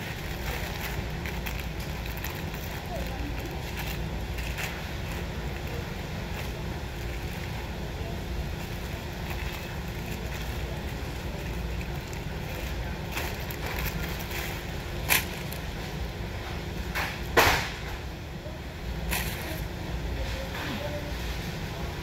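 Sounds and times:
paper wrapper crinkling: 0:00.0 - 0:15.8
steady low rumble: 0:00.0 - 0:22.0.

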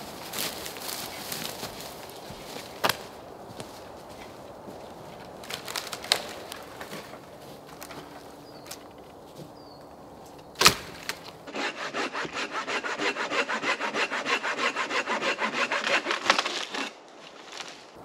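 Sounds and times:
sharp crack of wood: 0:02.8 - 0:03.1, 0:05.4 - 0:09.2, 0:10.6 - 0:11.4, 0:15.8 - 0:18.0
hand saw cutting branch: 0:11.5 - 0:17.8.

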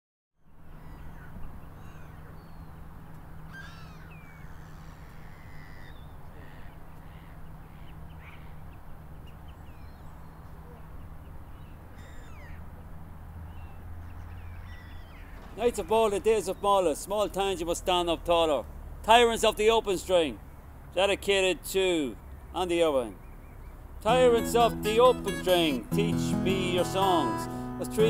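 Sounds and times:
bird calls and chirps: 0:00.5 - 0:02.9, 0:03.5 - 0:12.9, 0:13.5 - 0:15.9.

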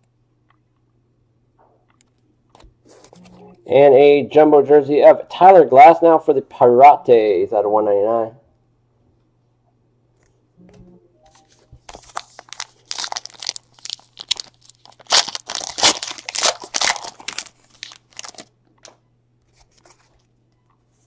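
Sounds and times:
packaging crinkling and tearing: 0:11.8 - 0:18.5.

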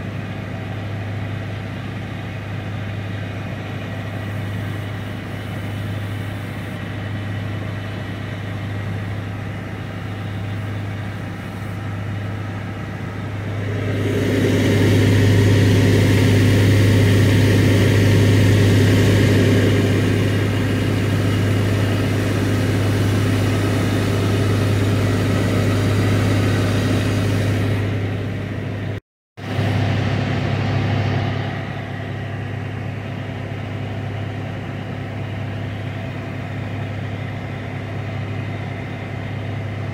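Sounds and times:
vehicle engine droning: 0:00.0 - 0:39.9
broad rushing noise: 0:03.4 - 0:32.6.

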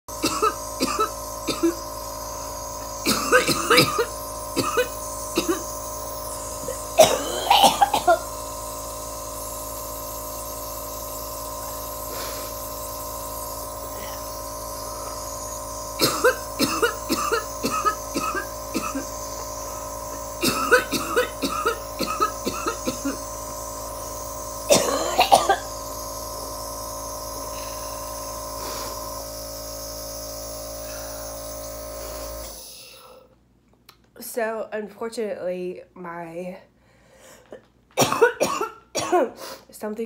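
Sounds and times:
woman coughing hard: 0:00.1 - 0:08.5, 0:15.1 - 0:23.4, 0:24.6 - 0:25.8, 0:38.0 - 0:39.7
nebulizer machine hum: 0:00.1 - 0:33.5, 0:37.4 - 0:39.7.

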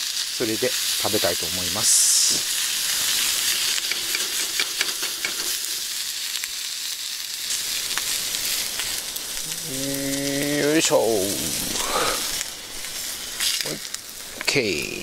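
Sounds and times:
vegetables sizzling in butter: 0:00.0 - 0:15.0
chopsticks clicking on pan: 0:03.7 - 0:05.6.

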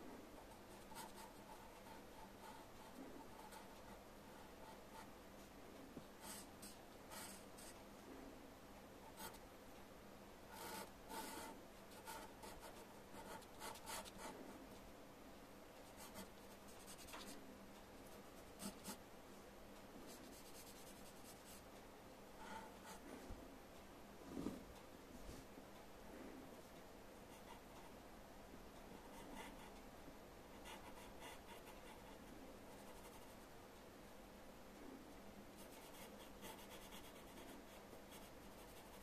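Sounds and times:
pencil scratching on paper: 0:00.4 - 0:05.1, 0:06.2 - 0:07.8, 0:10.5 - 0:14.3, 0:18.4 - 0:19.0, 0:30.5 - 0:33.4, 0:35.6 - 0:39.0.

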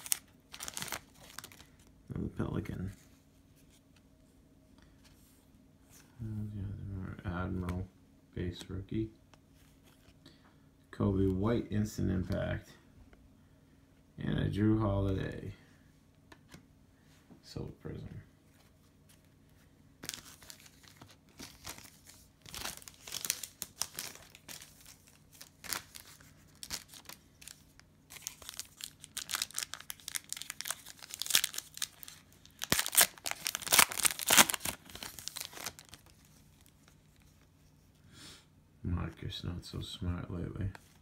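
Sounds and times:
cellophane wrapper crinkling: 0:00.0 - 0:01.9, 0:20.0 - 0:37.5.

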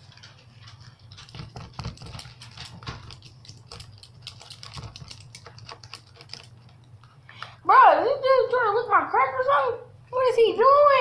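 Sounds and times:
chewing and eating noises: 0:00.0 - 0:07.6.

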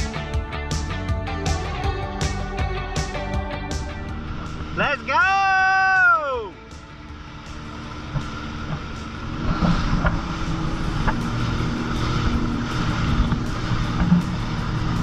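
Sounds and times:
jet ski engine running: 0:00.0 - 0:15.0
rushing wind and spray: 0:06.5 - 0:15.0.

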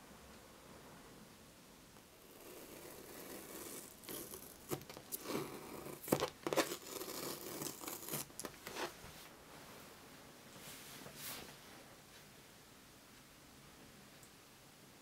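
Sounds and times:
tape peeling off canvas: 0:02.5 - 0:08.9.

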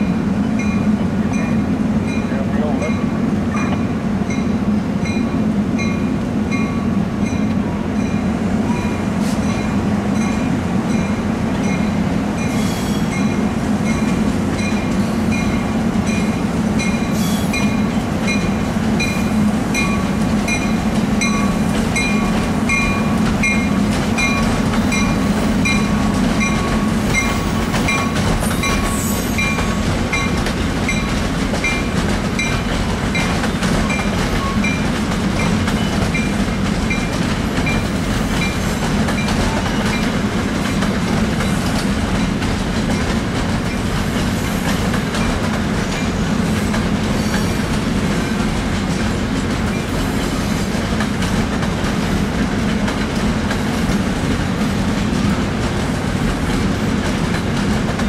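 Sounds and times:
locomotive bell ringing: 0:00.0 - 0:34.8
train rumbling past: 0:00.0 - 0:58.0.

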